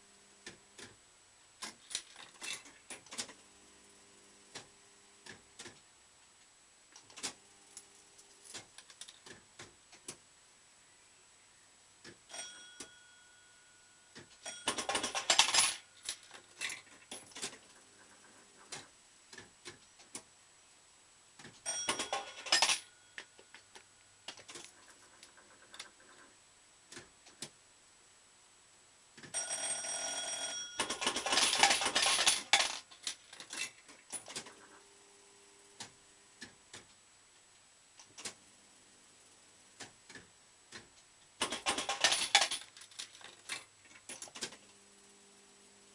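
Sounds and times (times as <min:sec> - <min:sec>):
bell-like ringing tone: 0:12.3 - 0:14.9, 0:21.7 - 0:23.6.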